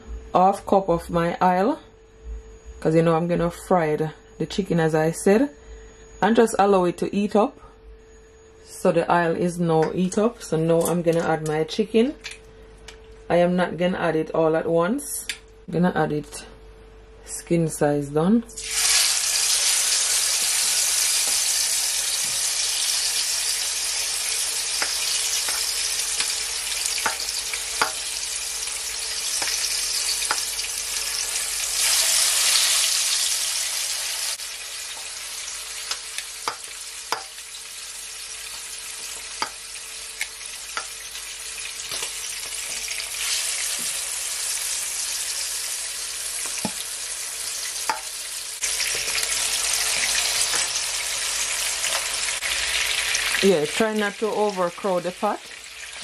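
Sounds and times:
chicken sizzling in hot oil: 18.6s - 56.0s.

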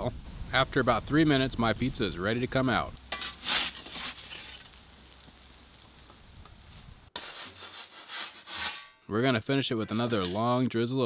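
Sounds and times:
oven flame humming: 2.9s - 6.7s
metal peel scraping on wooden board: 3.1s - 4.7s, 7.2s - 9.0s.

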